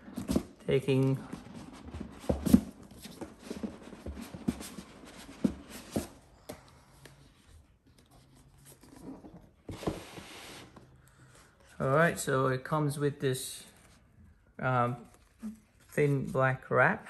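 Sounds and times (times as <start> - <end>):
cardboard scraping and rubbing: 0.0 - 6.2, 8.2 - 10.9.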